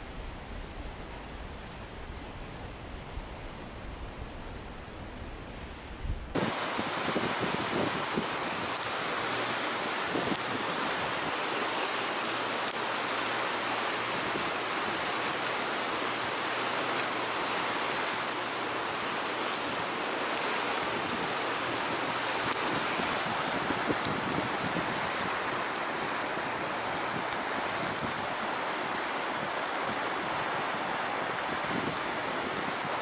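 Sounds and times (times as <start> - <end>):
floodwater rushing: 0.0 - 33.0.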